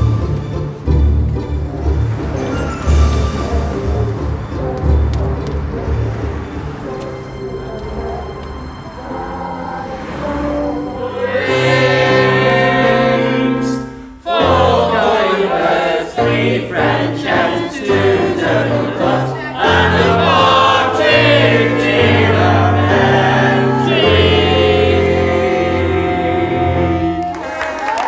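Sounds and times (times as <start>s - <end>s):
low sustained accompaniment: 0.0s - 12.6s
choir singing: 6.2s - 27.6s.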